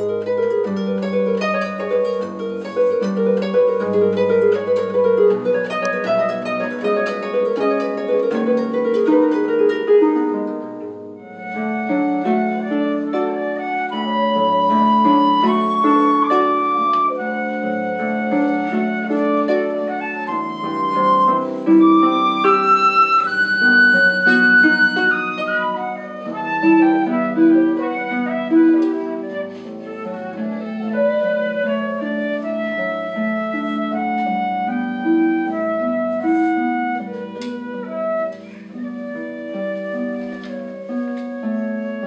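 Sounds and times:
flute melody: 0.0s - 42.0s
plucked harp: 0.0s - 42.0s.

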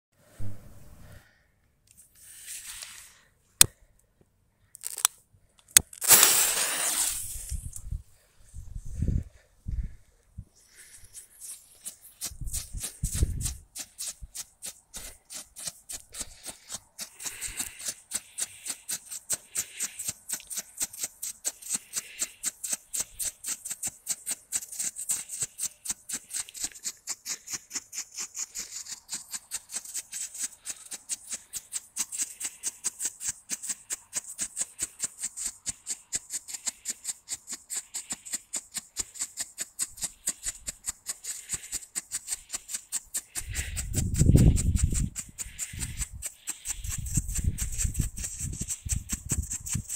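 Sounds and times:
strobe firework popping: 5.8s - 7.8s.

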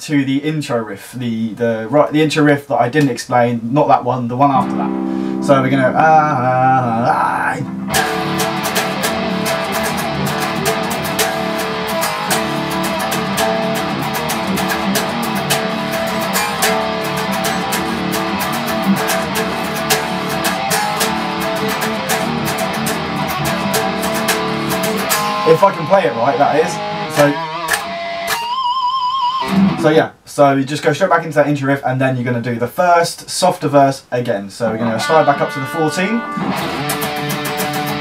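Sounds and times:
electric guitar riff: 4.5s - 30.1s, 34.7s - 38.0s.

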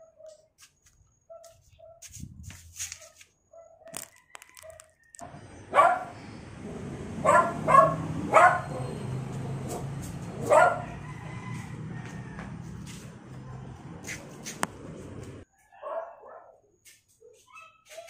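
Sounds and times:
dog barking: 0.0s - 0.5s, 1.3s - 2.0s, 3.0s - 4.0s, 5.7s - 11.7s, 15.7s - 16.7s.

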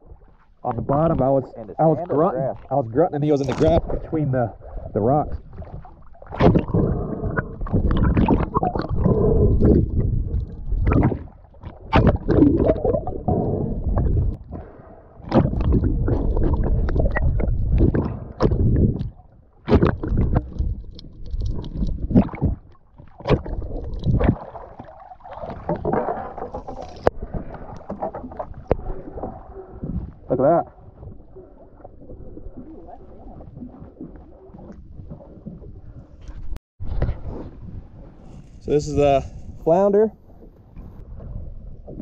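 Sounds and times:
water sloshing and gurgling: 0.0s - 42.0s.

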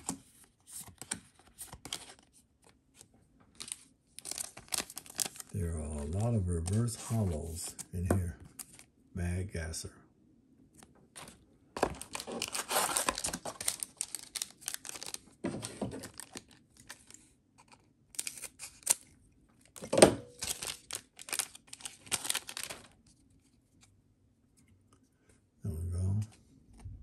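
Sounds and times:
foil wrapper tearing and crinkling: 3.6s - 6.2s, 11.8s - 17.2s, 18.1s - 19.1s, 20.3s - 23.0s.

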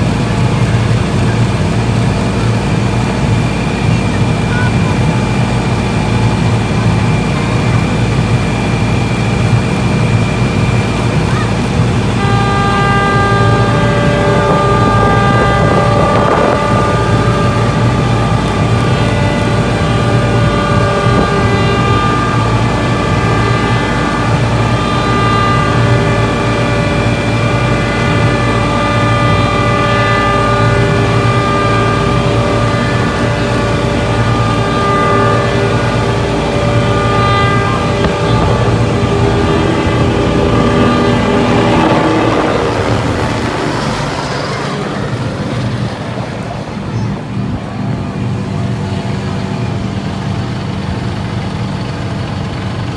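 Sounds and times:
steady high-pitched tone: 0.0s - 52.6s
pump engines running: 0.0s - 52.9s.

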